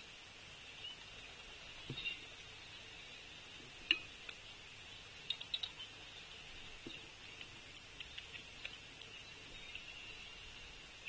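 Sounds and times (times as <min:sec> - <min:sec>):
bird chips and clicks: 0:05.2 - 0:06.0, 0:06.9 - 0:10.4.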